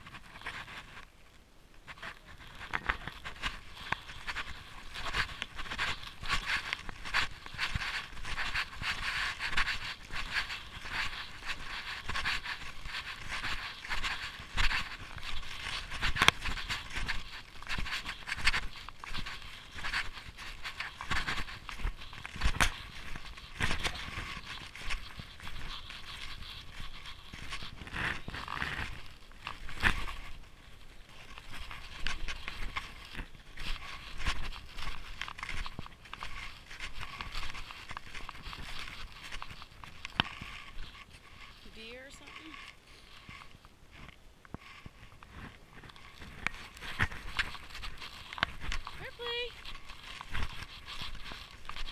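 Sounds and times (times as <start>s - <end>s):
snowshoes crunching in snow: 1.9s - 51.9s.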